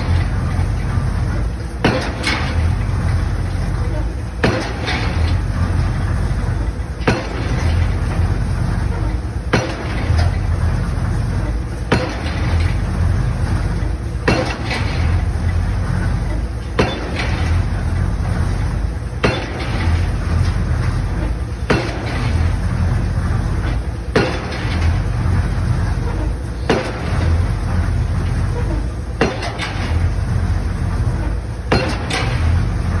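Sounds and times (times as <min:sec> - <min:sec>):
rig engine humming: 0:00.0 - 0:33.0
pile driver hammer blows: 0:01.7 - 0:02.8, 0:04.4 - 0:05.4, 0:07.0 - 0:08.3, 0:08.9 - 0:10.4, 0:11.8 - 0:12.8, 0:13.6 - 0:15.2, 0:16.6 - 0:17.7, 0:19.2 - 0:22.8, 0:23.6 - 0:25.1, 0:26.0 - 0:27.4, 0:28.6 - 0:30.1, 0:31.2 - 0:32.6.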